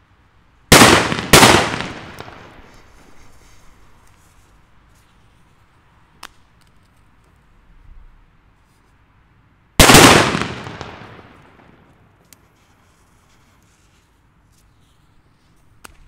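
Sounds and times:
firecracker bang with echo: 0.7 - 2.7, 9.8 - 11.8.

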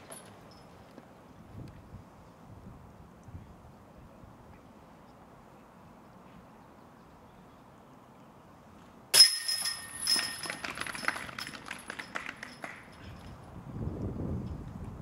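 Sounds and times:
disc hitting basket chains: 0.0 - 0.8, 9.1 - 13.3
chains jingling and rattling: 9.2 - 11.6.

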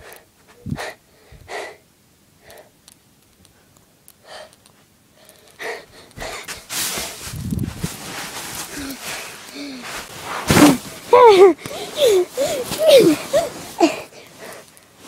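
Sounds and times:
short breaths or huffs: 5.2 - 7.4, 8.4 - 14.8.

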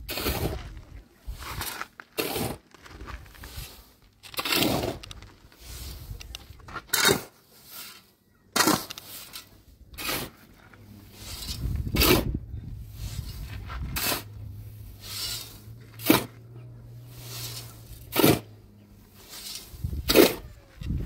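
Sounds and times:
sharp cracking and scraping: 1.4 - 12.4.

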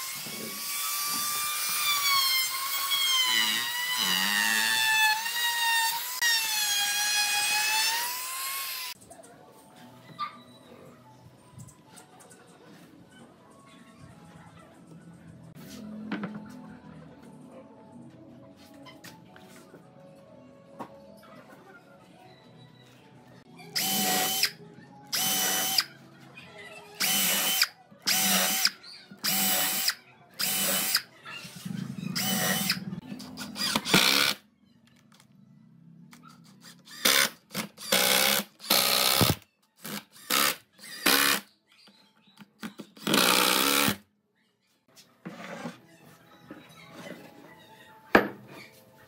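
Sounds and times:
cordless drill whirring: 27.0 - 31.0, 32.2 - 32.8, 36.9 - 41.4.

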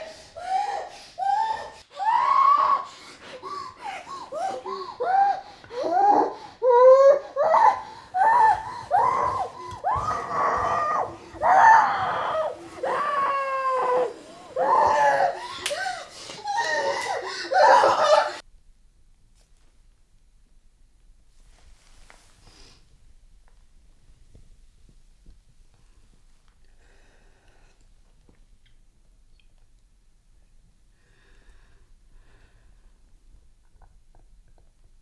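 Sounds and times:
woman crying and wailing: 3.4 - 18.4.

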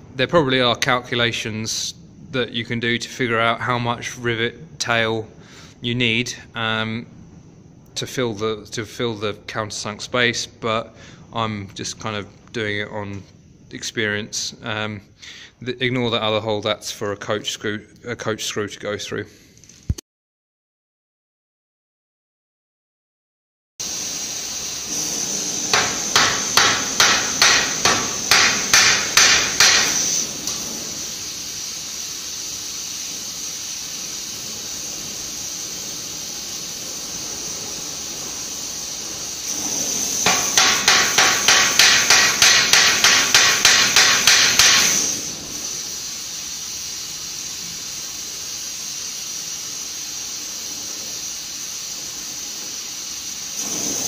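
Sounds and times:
gas torch hissing: 23.8 - 54.0
hammer tapping rivet: 25.7 - 30.0, 40.3 - 44.9.

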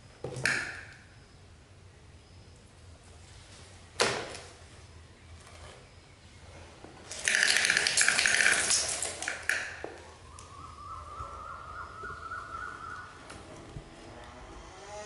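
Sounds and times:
plastic toy truck rattling on tile: 7.1 - 9.8
faint rising whine: 9.9 - 15.0.

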